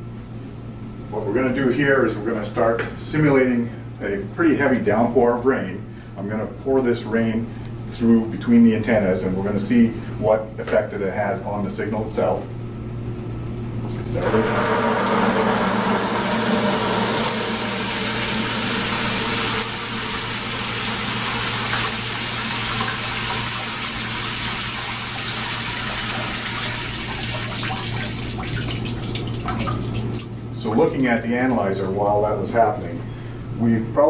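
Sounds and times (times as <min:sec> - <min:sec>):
water pouring and splashing: 0:14.2 - 0:30.6.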